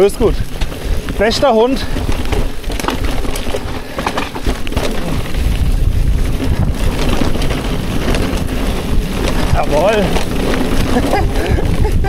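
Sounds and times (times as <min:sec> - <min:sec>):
bike knocks and rattles: 0:00.0 - 0:12.0
tyres and wind rumble: 0:00.0 - 0:12.0.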